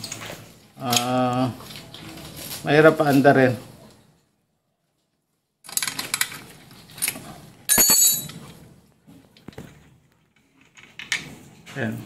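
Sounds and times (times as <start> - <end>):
metal tool clicking and clinking: 5.7 - 8.6.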